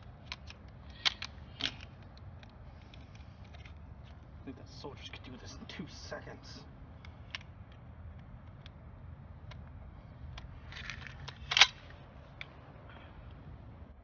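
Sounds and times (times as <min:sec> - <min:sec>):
rifle action metallic clicks: 0:00.2 - 0:04.2, 0:10.3 - 0:12.5.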